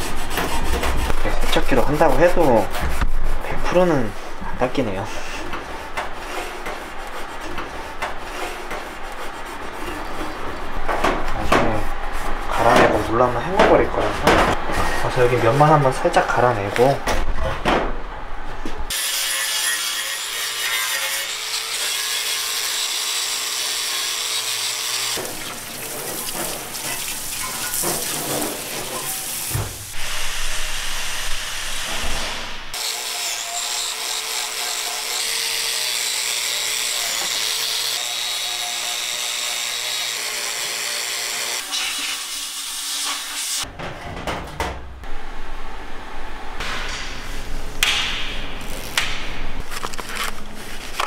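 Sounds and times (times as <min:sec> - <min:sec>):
power tool grinding metal: 0:18.9 - 0:25.2, 0:32.8 - 0:43.6.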